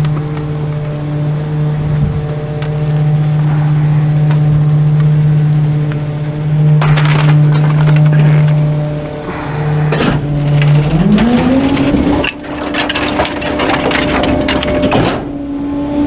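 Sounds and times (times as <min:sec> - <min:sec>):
garbage truck low hum: 0:00.0 - 0:16.0
loud scraping and rattling: 0:06.3 - 0:15.5.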